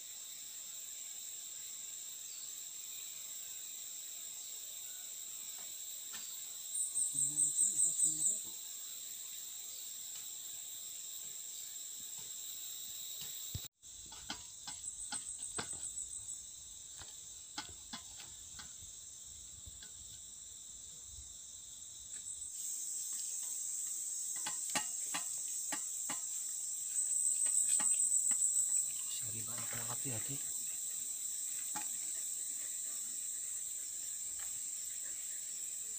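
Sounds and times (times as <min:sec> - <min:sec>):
insects chirring: 0:00.0 - 0:35.9.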